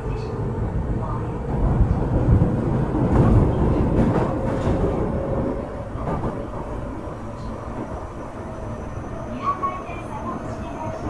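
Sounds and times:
subway wheels rumbling on rails: 0.0 - 11.0
faint clickety-clack: 3.1 - 5.1.

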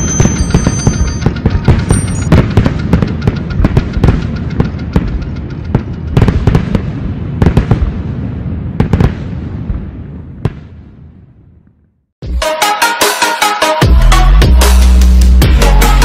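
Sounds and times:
fireworks crackling and popping: 0.0 - 11.0
heavy electronic beat: 12.2 - 16.0.

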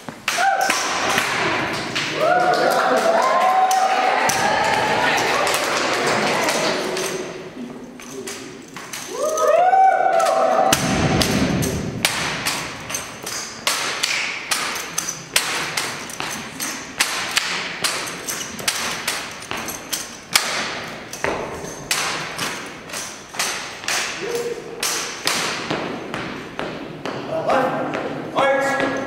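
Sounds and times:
rifles slapping and thudding: 0.0 - 27.3
feet stamping: 10.7 - 24.3.

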